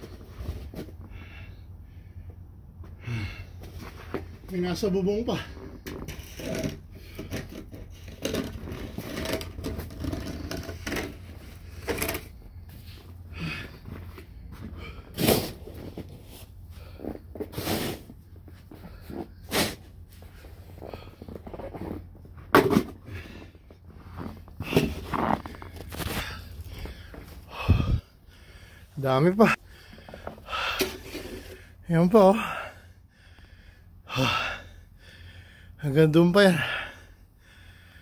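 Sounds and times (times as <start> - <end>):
snow shovel scraping snow: 17.5 - 18.1.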